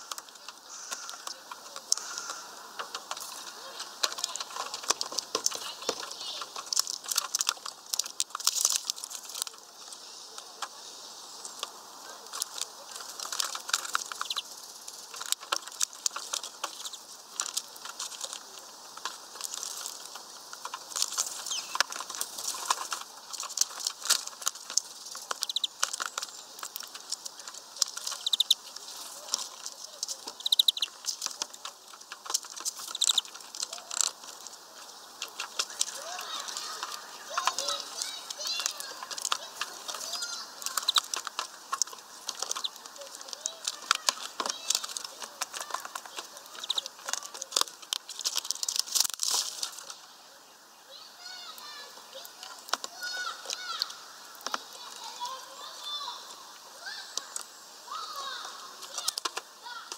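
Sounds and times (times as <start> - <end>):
birds pecking taps and clicks: 0.0 - 50.1, 51.0 - 59.9
scrabbling on wooden perch: 0.0 - 50.1, 56.9 - 59.9
wing flutters: 0.0 - 50.2
high bird chirps: 13.9 - 15.0, 16.7 - 17.1, 21.3 - 22.6, 24.8 - 26.9, 27.9 - 32.0, 32.6 - 33.6, 34.8 - 41.2, 42.4 - 43.0, 46.0 - 47.0.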